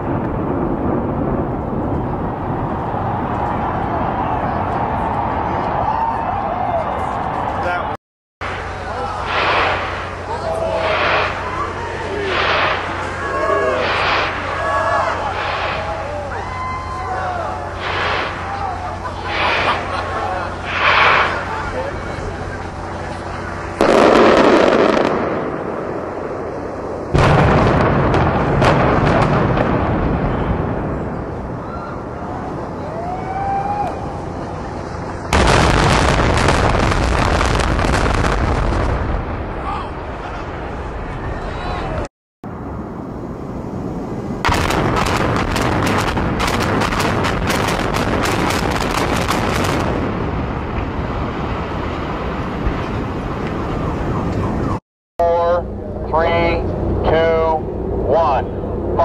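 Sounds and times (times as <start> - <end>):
low rumble: 0.0 - 54.8, 55.4 - 59.0
explosive charges blasting: 8.4 - 16.2, 17.6 - 22.3, 23.4 - 31.6, 34.8 - 41.1, 44.2 - 53.7
fireworks cracking: 8.4 - 31.5, 34.3 - 41.2, 44.4 - 54.8.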